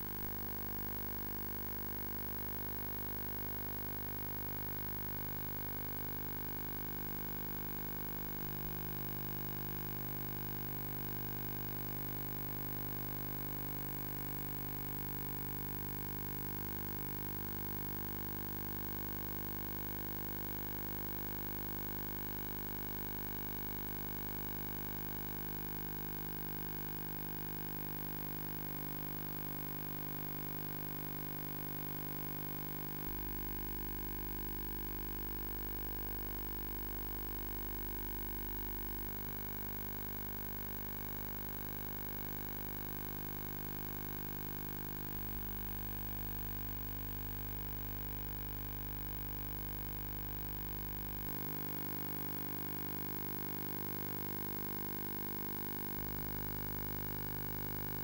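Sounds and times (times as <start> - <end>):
electrical hum with hiss: 0.0 - 25.4.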